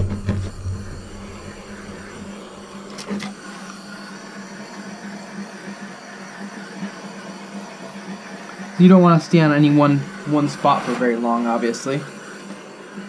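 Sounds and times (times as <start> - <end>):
deeper rumble: 0.0 - 3.0
propane torch flame hissing: 0.0 - 13.0.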